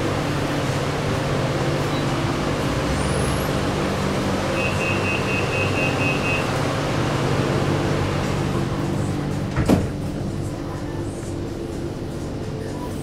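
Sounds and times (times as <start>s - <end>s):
train car low hum: 0.0s - 13.0s.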